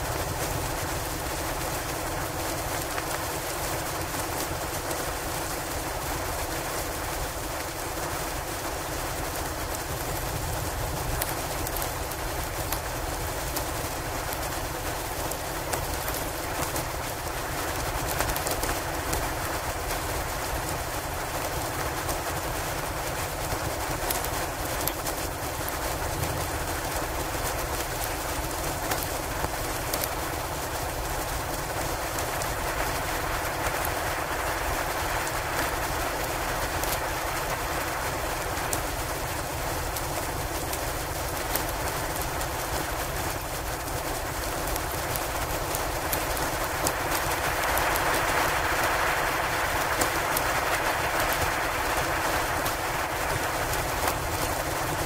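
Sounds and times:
wind and snowstorm noise: 0:00.0 - 0:55.0
log fire crackling: 0:00.1 - 0:55.0
blizzard rushing: 0:25.6 - 0:55.0.

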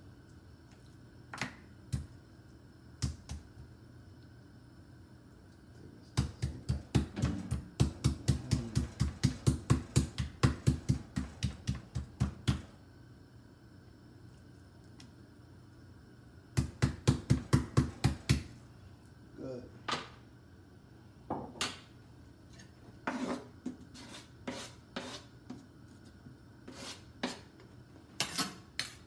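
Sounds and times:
meat mallet pounding meat: 0:06.2 - 0:12.6, 0:16.6 - 0:18.5.

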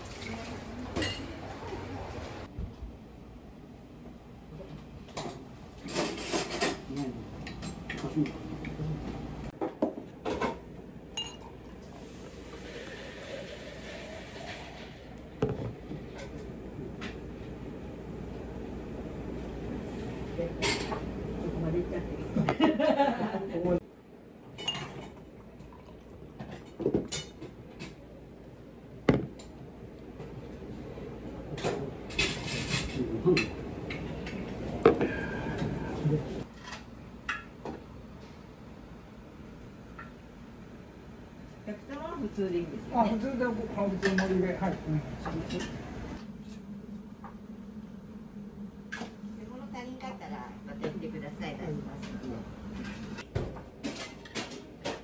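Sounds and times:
restaurant background noise: 0:00.0 - 0:55.0
dishes and cutlery clattering: 0:01.0 - 0:01.3, 0:05.1 - 0:08.3, 0:24.6 - 0:25.2, 0:31.5 - 0:34.5, 0:52.8 - 0:55.0
glass clinking: 0:01.0 - 0:01.3, 0:11.1 - 0:11.6
beer pouring into a glass: 0:11.3 - 0:15.2, 0:25.1 - 0:26.6.

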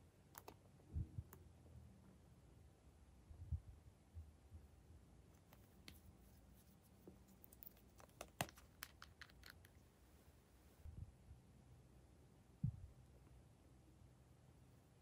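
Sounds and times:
small plastic clicks and taps: 0:00.3 - 0:00.6, 0:07.4 - 0:09.8.

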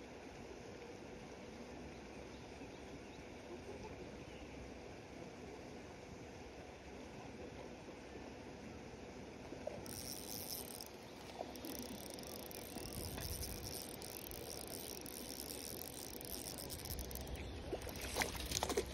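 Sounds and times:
fishing reel cranking: 0:09.8 - 0:18.9
fish splashing in water: 0:09.9 - 0:18.9.

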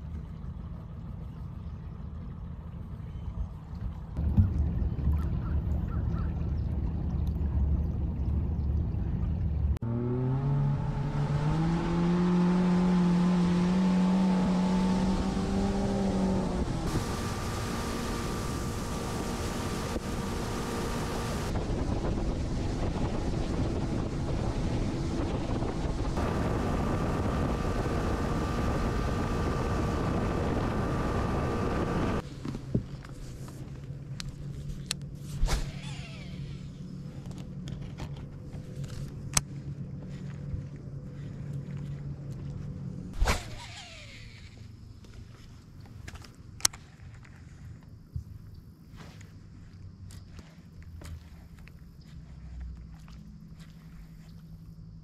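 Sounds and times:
outboard engine: 0:00.0 - 0:48.9
rushing wind and water: 0:14.5 - 0:33.1.

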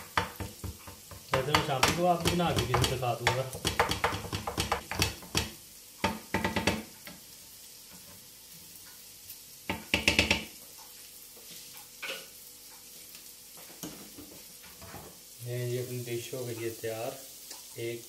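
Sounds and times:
food sizzling: 0:00.0 - 0:18.0
wooden spatula scraping a pan: 0:13.7 - 0:15.3.

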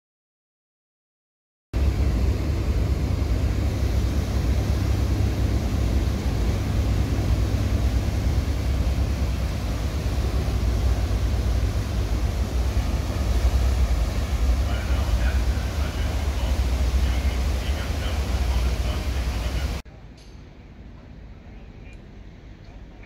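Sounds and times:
churning stern wash: 0:01.8 - 0:19.8
ferry engines rumbling: 0:01.8 - 0:23.0.

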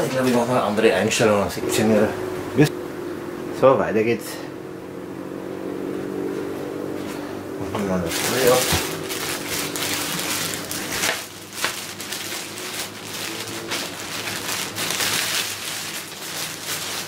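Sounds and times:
plastic wrapping crinkling: 0:08.0 - 0:17.0.

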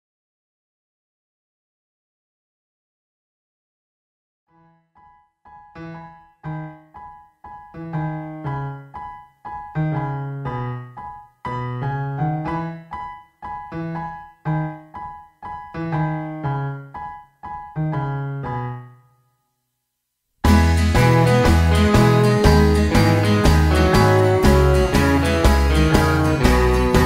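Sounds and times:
piano tune: 0:04.5 - 0:19.6, 0:20.4 - 0:27.0.

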